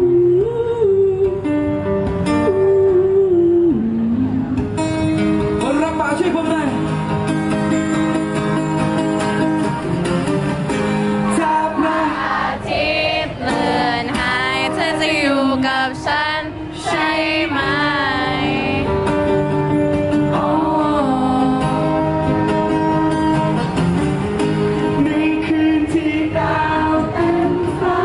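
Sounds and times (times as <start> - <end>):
man singing: 0.0 - 1.6, 2.4 - 4.5, 11.3 - 12.1, 20.3 - 23.6, 24.8 - 28.0
strummed acoustic guitar: 1.0 - 28.0.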